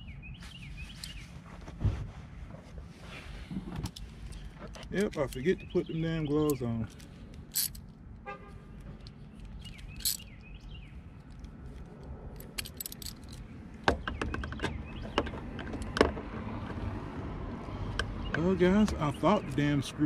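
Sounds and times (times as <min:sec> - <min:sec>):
bird chirping: 0:00.0 - 0:01.4, 0:04.3 - 0:06.8, 0:08.7 - 0:11.2, 0:13.4 - 0:15.4.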